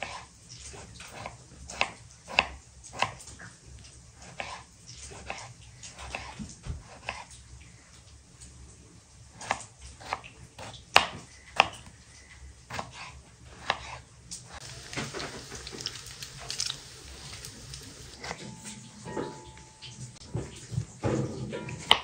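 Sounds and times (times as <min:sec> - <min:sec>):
knife cutting on wooden board: 0:04.2 - 0:07.3, 0:12.7 - 0:18.4.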